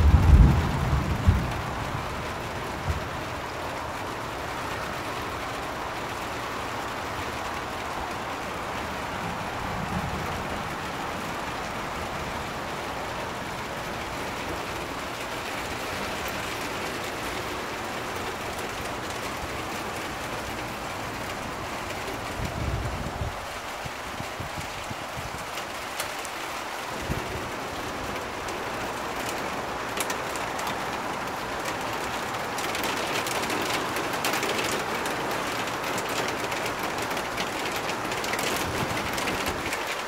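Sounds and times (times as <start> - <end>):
steady rain falling: 0.0 - 40.0.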